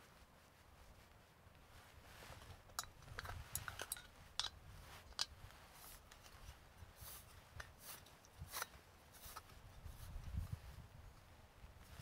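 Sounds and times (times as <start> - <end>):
short rustle: 0.0 - 10.8
small metal clicks and scrapes: 2.7 - 9.5.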